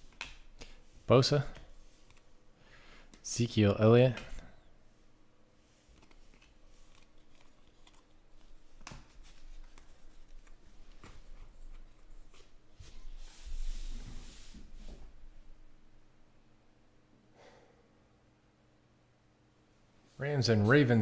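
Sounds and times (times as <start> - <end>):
cards rustling: 0.0 - 2.4, 5.7 - 12.5
trading cards sliding and tapping: 1.6 - 2.3.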